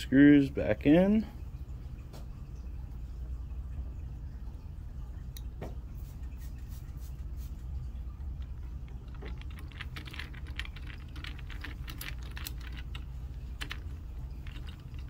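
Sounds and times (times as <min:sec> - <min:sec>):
low steady hum: 0:00.0 - 0:15.0
fingers handling plastic parts: 0:08.2 - 0:15.0.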